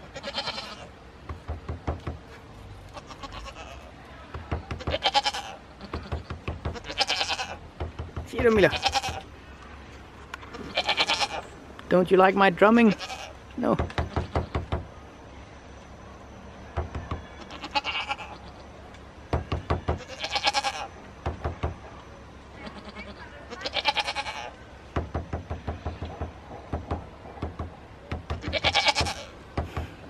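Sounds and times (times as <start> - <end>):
goat bleating: 0.0 - 0.9, 2.9 - 4.0, 4.8 - 7.6, 8.4 - 9.3, 10.5 - 11.5, 12.8 - 13.4, 17.4 - 18.7, 20.0 - 20.9, 22.6 - 24.6, 28.4 - 29.4.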